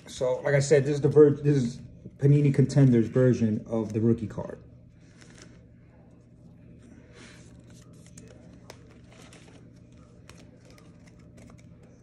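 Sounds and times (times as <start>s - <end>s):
card wrappers crinkling: 5.0s - 5.7s, 7.5s - 12.0s.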